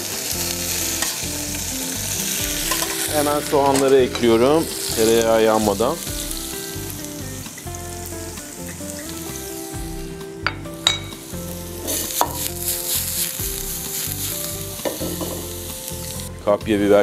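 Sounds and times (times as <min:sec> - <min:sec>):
onions sizzling in butter: 0:00.0 - 0:17.0
metallic pan clinks: 0:02.7 - 0:04.6, 0:10.4 - 0:12.6, 0:14.8 - 0:15.5.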